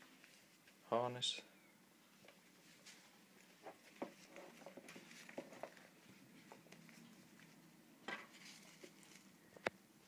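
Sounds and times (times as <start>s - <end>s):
rubber straps rustling: 2.2s - 9.7s.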